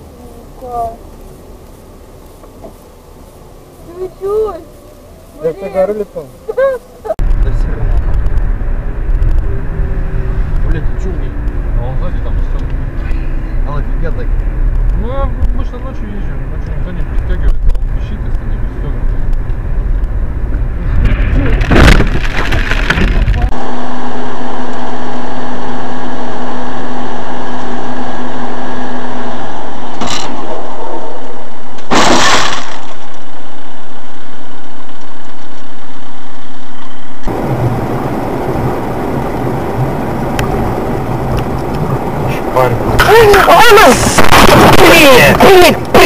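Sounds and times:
road and engine noise: 0.0s - 46.0s
car crash: 20.8s - 35.2s, 42.3s - 46.0s
steady hum: 23.3s - 46.0s
sharp bang: 31.7s - 33.5s.

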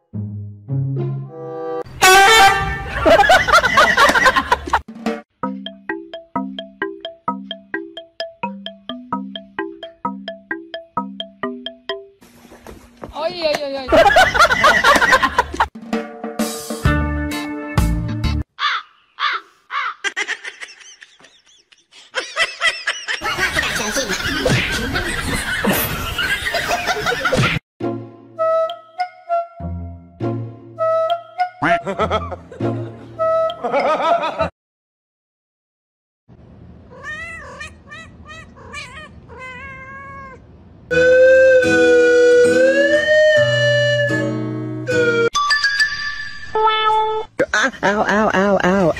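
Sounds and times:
many voices laughing: 13.9s - 15.7s, 20.1s - 27.4s, 31.7s - 33.0s
cat meowing: 36.9s - 40.4s.

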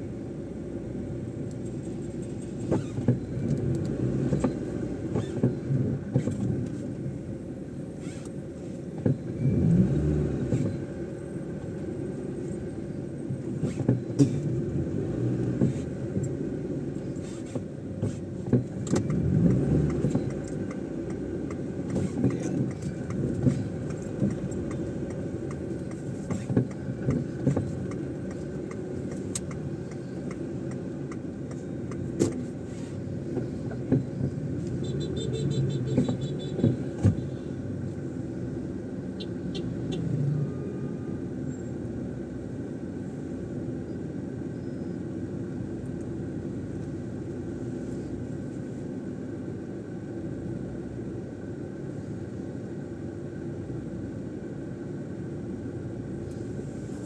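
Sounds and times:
car road and engine rumble: 0.0s - 57.0s.

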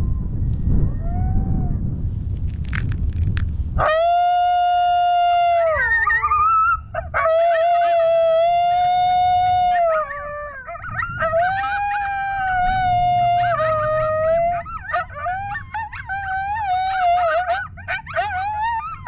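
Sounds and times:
electronic coyote howls: 0.8s - 1.9s, 3.8s - 19.0s
coyote yips and warbling: 5.6s - 19.0s.

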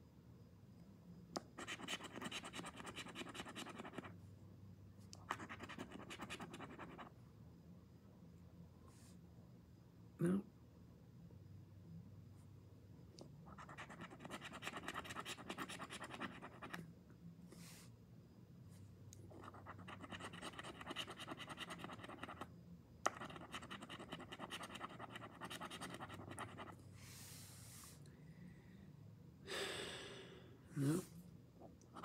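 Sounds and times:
scratch-off ticket being scratched: 13.5s - 16.8s, 19.3s - 22.4s, 23.1s - 26.8s.

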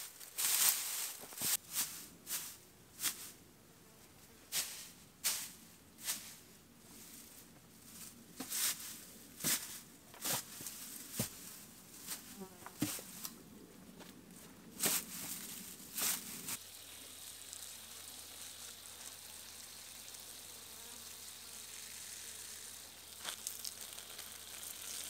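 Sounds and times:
insect buzzing: 16.4s - 25.0s.

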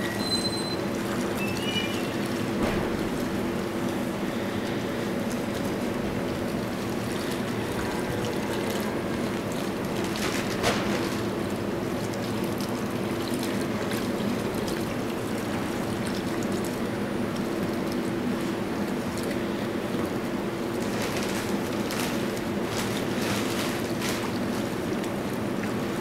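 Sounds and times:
hands sloshing through wet mash: 0.0s - 26.0s.

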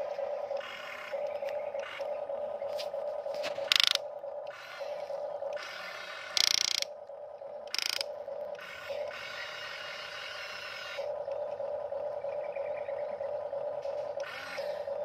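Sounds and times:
steady motor hum: 0.0s - 15.0s
toy excavator gears whirring: 0.5s - 2.1s, 3.4s - 6.9s, 7.6s - 11.6s, 13.8s - 15.0s.

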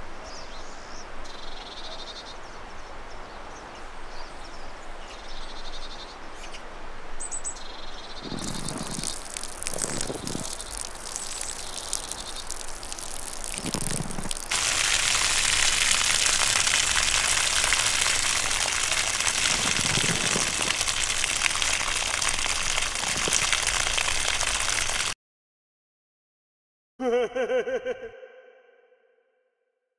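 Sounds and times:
steady rushing hiss: 8.0s - 25.2s.

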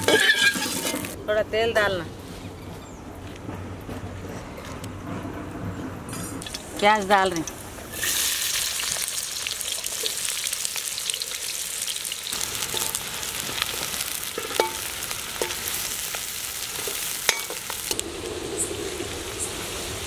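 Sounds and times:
metal spatula scraping pan: 0.0s - 1.2s
onions sizzling in hot oil: 0.0s - 1.2s, 6.4s - 20.0s.

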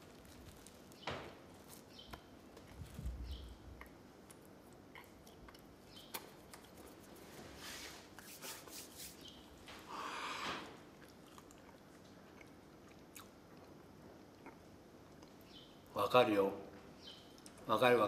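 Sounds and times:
man chewing: 3.8s - 7.1s, 10.8s - 15.4s
mouth clicks and smacks: 3.8s - 7.1s.

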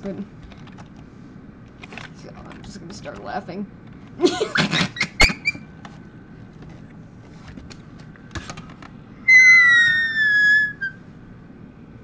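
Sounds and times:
boy's squealing laugh: 9.3s - 11.0s.

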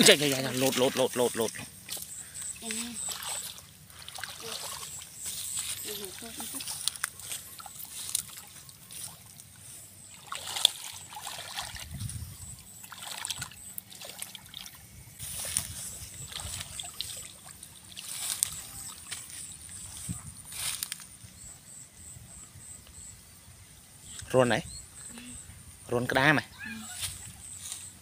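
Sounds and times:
muddy water sloshing and splashing: 0.0s - 21.0s.

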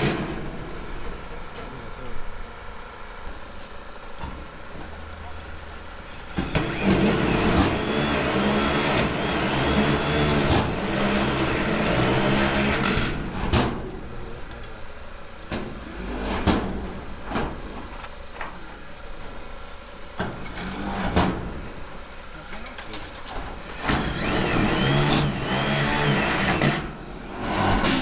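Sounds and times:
power drill whirring: 6.3s - 13.4s, 23.6s - 28.0s.

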